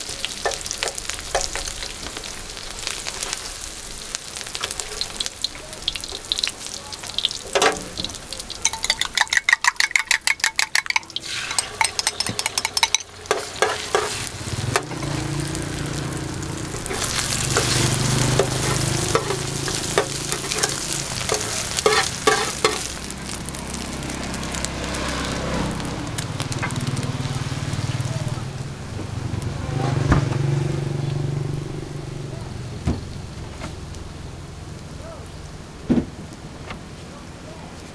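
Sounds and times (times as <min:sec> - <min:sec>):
food sizzling on a griddle: 0:00.0 - 0:09.4, 0:10.8 - 0:37.9
tongs and spatula clacking on metal: 0:00.4 - 0:02.0, 0:07.5 - 0:15.2, 0:16.8 - 0:23.0.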